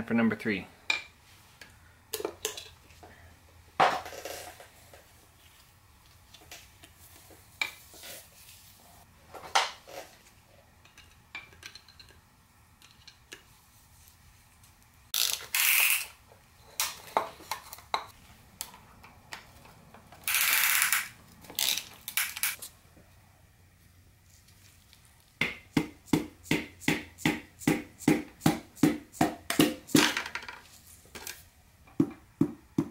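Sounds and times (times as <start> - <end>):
ratchet clicking: 20.3 - 22.6.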